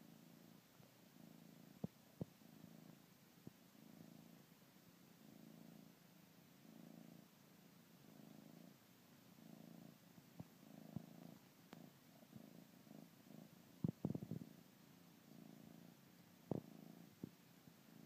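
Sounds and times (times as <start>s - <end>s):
kitten purring: 0.0s - 18.0s.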